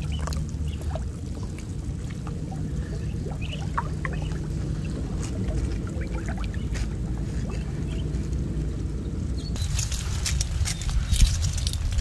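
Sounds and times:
small drips and splashes: 0.0 - 7.9
water sloshing around wading person: 0.0 - 8.4
steady low rumble: 0.0 - 12.0.

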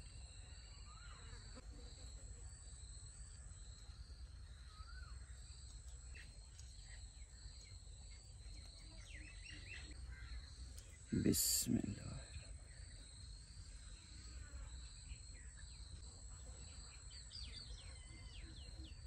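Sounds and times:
bird chirp: 4.5 - 16.0, 16.7 - 19.0.

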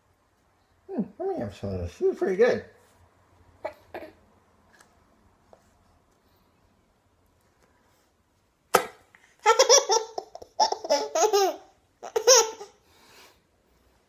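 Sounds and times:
baby laughing: 8.8 - 12.8.

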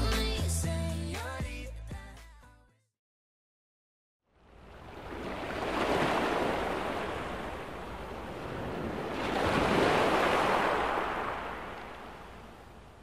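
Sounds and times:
waves rushing in: 4.4 - 13.0.

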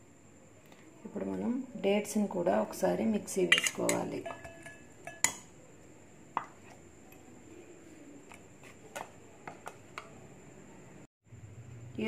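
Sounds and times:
metal jar taps and clinks: 3.5 - 5.5.

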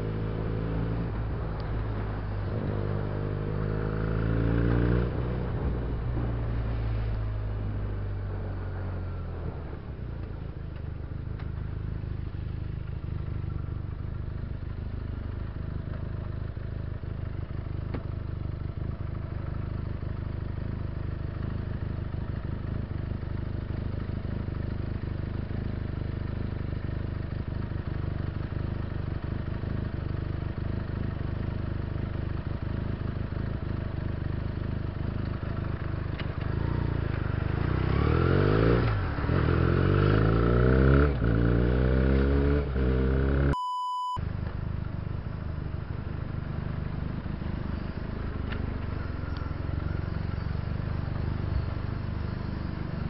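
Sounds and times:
motorcycle engine running: 7.5 - 43.6.

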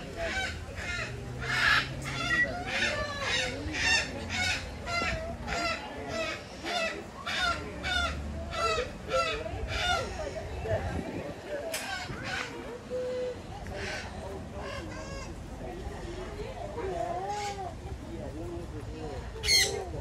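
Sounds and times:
parrot squawking: 19.4 - 19.8.

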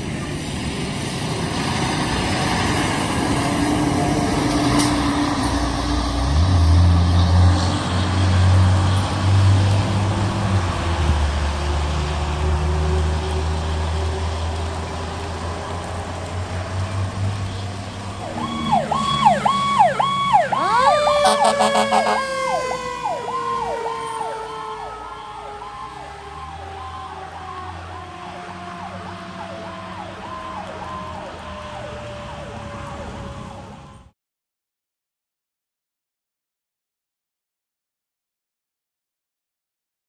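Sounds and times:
truck engine rumble: 0.0 - 34.1
fire engine siren yelp: 0.0 - 34.2
siren wail falling in pitch: 18.1 - 34.1.

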